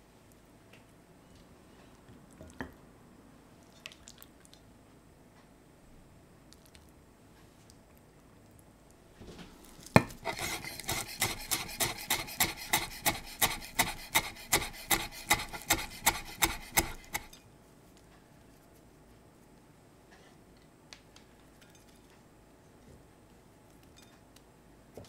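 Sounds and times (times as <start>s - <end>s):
knife chopping on wooden board: 10.0s - 17.4s.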